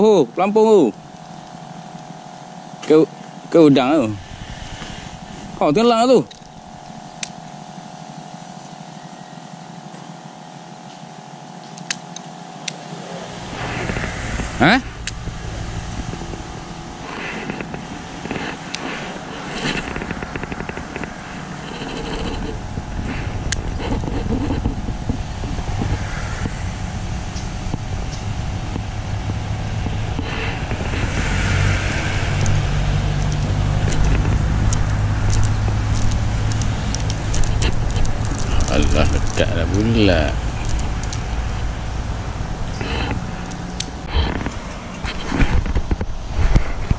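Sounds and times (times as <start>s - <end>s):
engine humming: 0.0s - 46.9s
low rumble: 4.0s - 7.0s, 13.0s - 46.9s.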